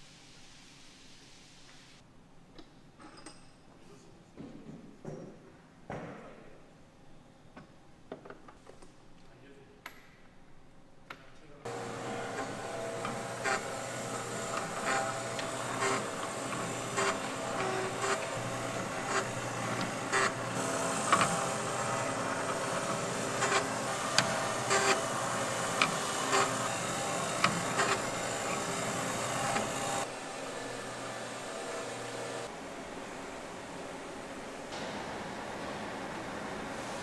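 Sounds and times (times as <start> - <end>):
factory machinery humming: 11.7 - 37.0
machine clicks and knocks: 11.8 - 30.0.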